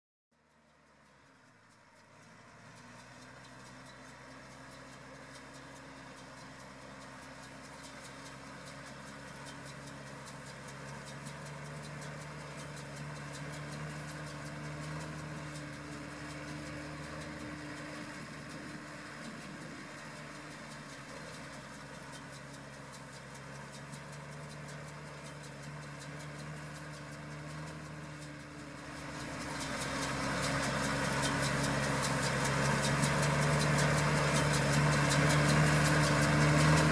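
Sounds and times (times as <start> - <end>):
diesel tractor engine clattering: 0.4 - 36.9.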